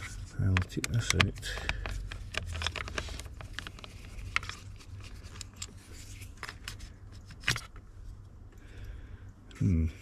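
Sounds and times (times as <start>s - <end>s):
small clicks and taps of tools: 0.5s - 2.8s.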